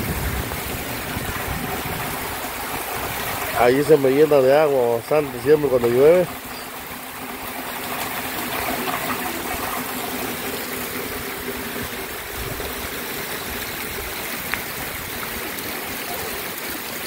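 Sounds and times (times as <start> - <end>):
heavy rain falling: 0.0 - 17.0
rainwater running over ground: 0.0 - 17.0.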